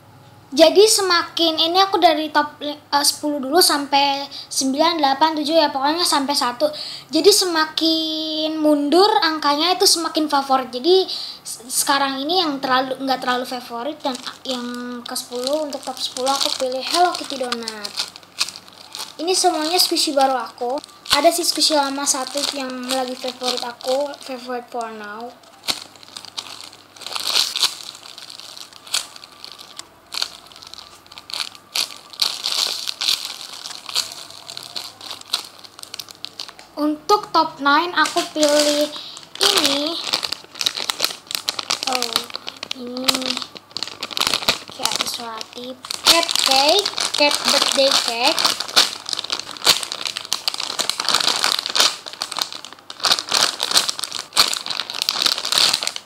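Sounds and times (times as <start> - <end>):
plastic bag crinkling: 11.2 - 56.0.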